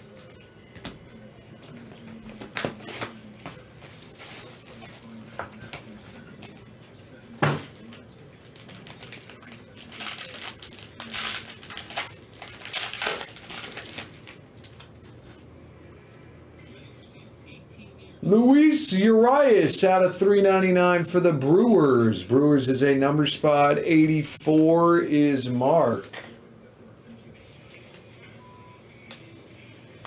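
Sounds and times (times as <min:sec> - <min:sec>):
foil wrapper crinkling: 0:02.8 - 0:05.8, 0:07.9 - 0:15.4.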